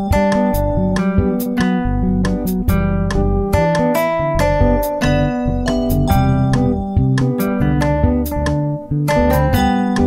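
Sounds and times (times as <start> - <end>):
instrumental music with plucked guitar: 0.0 - 10.0.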